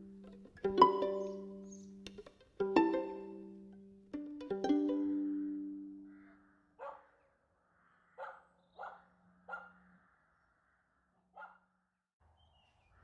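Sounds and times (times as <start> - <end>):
plucked-string music: 0.0 - 6.1
dog barking: 6.8 - 7.3, 8.1 - 9.9, 11.3 - 11.8.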